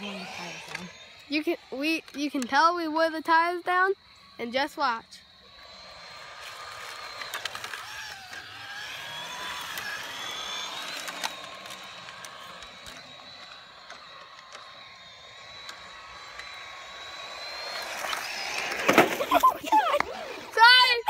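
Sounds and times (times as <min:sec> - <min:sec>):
small electric motor whining: 0:00.0 - 0:21.0
clicks: 0:09.6 - 0:20.2.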